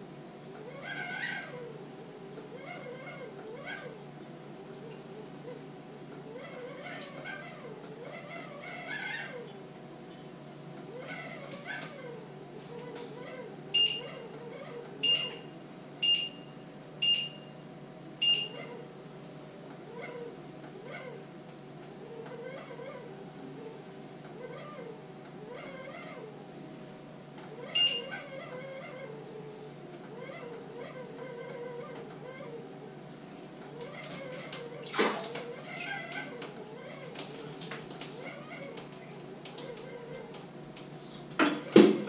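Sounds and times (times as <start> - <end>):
short electronic beeps: 13.8 - 14.0, 15.0 - 15.4, 16.0 - 17.5, 18.2 - 18.6, 27.8 - 28.1.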